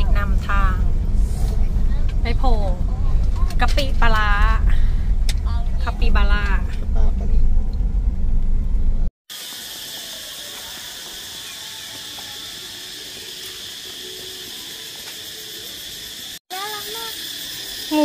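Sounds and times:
car cabin road rumble: 0.0s - 9.1s
high-pitched outdoor hiss: 9.3s - 18.0s.

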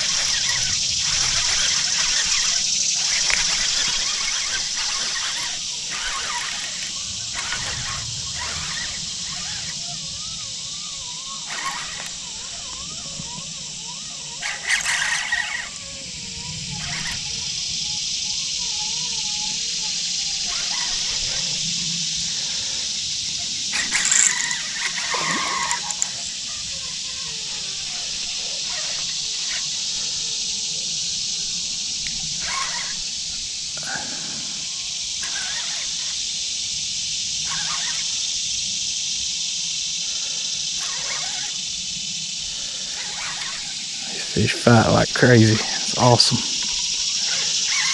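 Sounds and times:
insect chorus drone: 0.0s - 47.9s.

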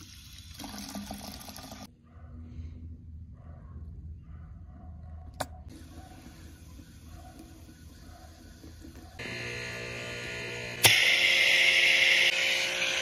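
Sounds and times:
pressure washer motor humming: 5.7s - 13.0s.

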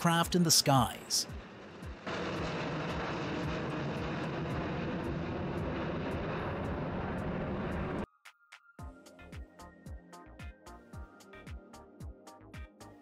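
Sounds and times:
jet engines climbing: 0.0s - 8.1s.

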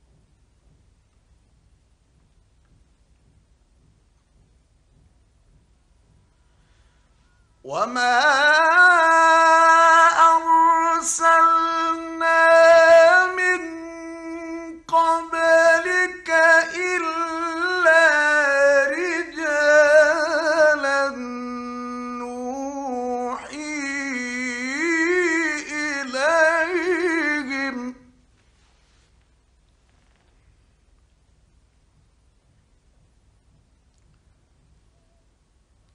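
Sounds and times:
man chanting melodically: 7.6s - 28.2s.

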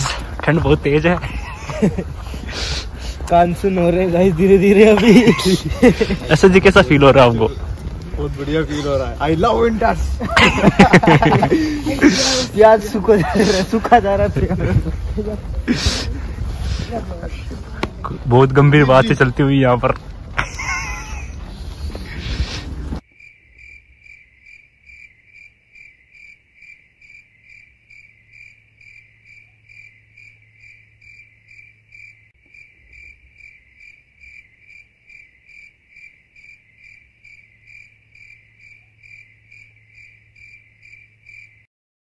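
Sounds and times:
crickets chirping: 0.0s - 19.7s, 20.4s - 41.7s.

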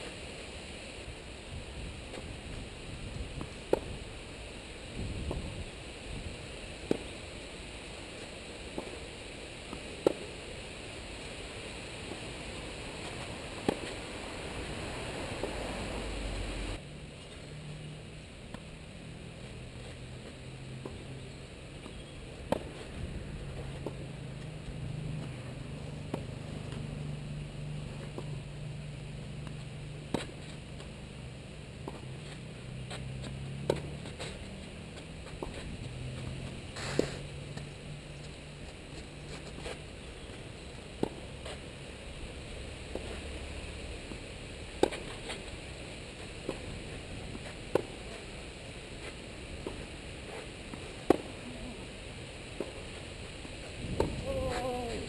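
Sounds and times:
outdoor background hiss: 0.0s - 55.0s
tennis ball struck by rackets: 3.4s - 4.0s, 6.8s - 7.1s, 8.7s - 9.0s, 9.7s - 10.4s, 12.0s - 14.2s, 21.8s - 27.2s, 29.3s - 30.9s, 31.8s - 38.3s, 41.0s - 41.6s, 44.7s - 45.5s, 46.4s - 48.2s, 49.6s - 51.4s, 52.6s - 52.8s, 53.8s - 55.0s.

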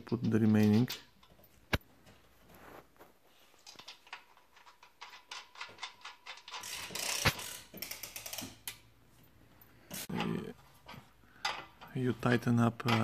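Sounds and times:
metallic clicks and rattles: 3.6s - 8.9s, 12.8s - 13.0s.

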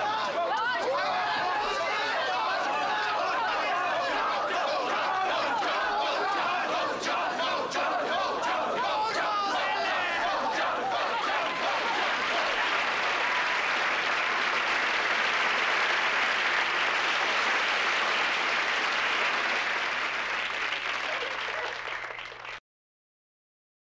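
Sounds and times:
crowd applauding: 0.0s - 22.6s.

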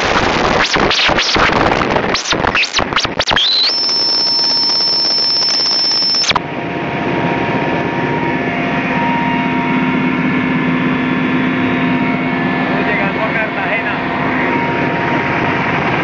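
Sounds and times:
steady high-pitched tone: 0.0s - 6.5s, 7.9s - 16.0s
helicopter cabin noise: 3.8s - 16.0s.

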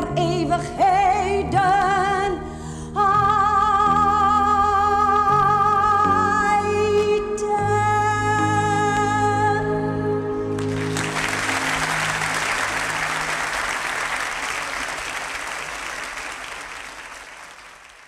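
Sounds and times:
audience applause: 10.6s - 18.0s.

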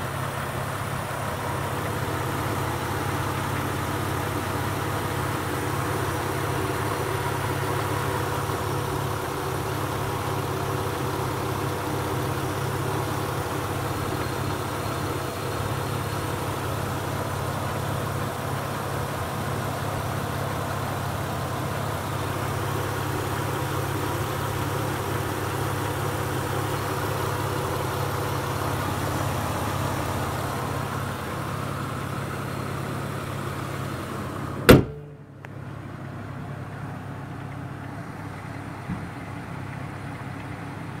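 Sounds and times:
car engine idling: 0.0s - 41.0s
car hood slamming shut: 34.7s - 35.3s.

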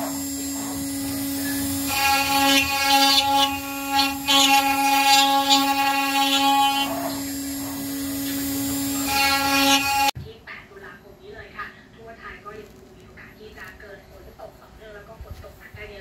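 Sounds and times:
router bit cutting wood: 0.0s - 10.2s
router motor whine: 0.0s - 10.2s.

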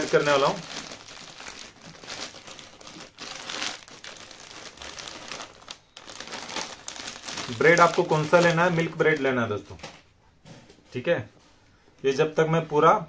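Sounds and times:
plastic bread bag crinkling: 0.0s - 9.3s.

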